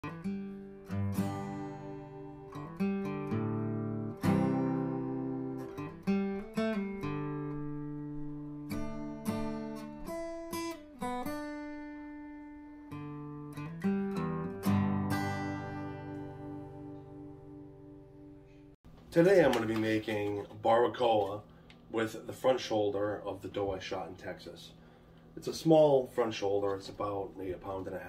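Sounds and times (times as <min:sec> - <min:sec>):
acoustic guitar strumming chords: 0:00.0 - 0:18.7.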